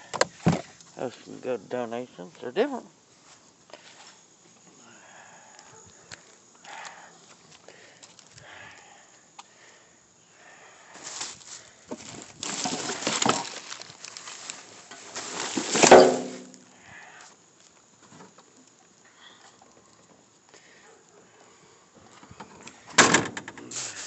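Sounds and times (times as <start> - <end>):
plastic bags rustling: 11.0 - 16.5.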